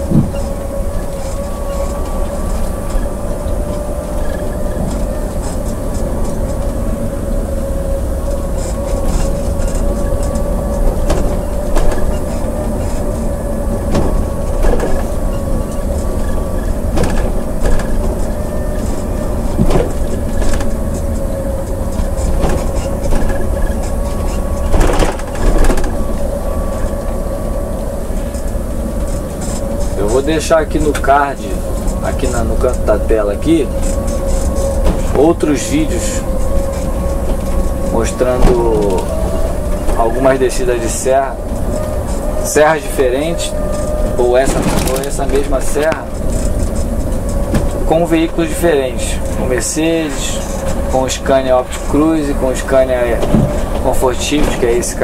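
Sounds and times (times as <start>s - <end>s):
cab knocks and rattles: 0.0s - 7.1s, 8.3s - 26.9s, 43.6s - 48.2s, 53.0s - 55.0s
engine drone with whine: 0.0s - 55.0s
road rumble: 0.0s - 55.0s.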